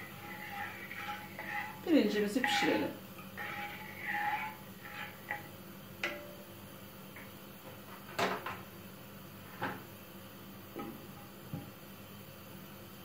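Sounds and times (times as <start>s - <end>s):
faint steady hum: 0.0s - 13.0s
spatula knocking on a pot: 4.3s - 6.4s.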